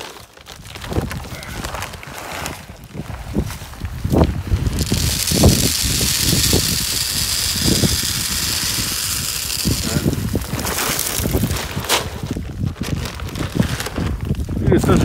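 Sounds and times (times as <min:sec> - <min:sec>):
corn kernels pouring down pipe: 0:04.5 - 0:11.9.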